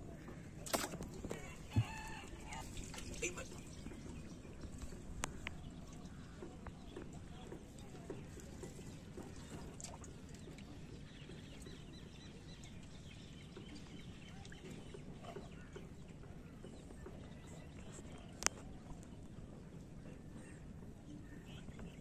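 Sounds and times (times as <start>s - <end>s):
distant birds calling: 0.0s - 10.2s
low background hum: 0.0s - 22.0s.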